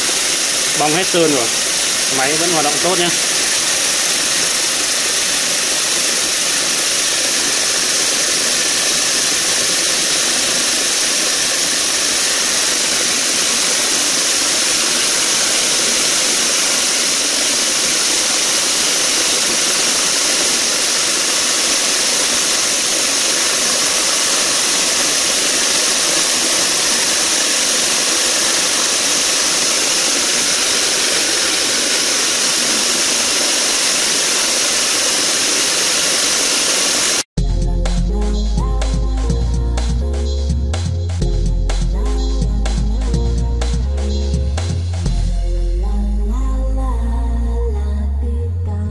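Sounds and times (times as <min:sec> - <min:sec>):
vibratory tumbler churning pellets: 0:00.0 - 0:37.2.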